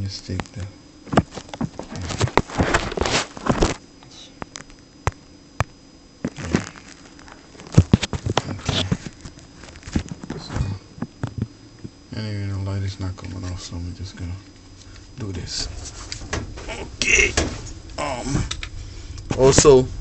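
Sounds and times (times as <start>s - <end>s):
camera handling rustles: 6.3s - 10.4s.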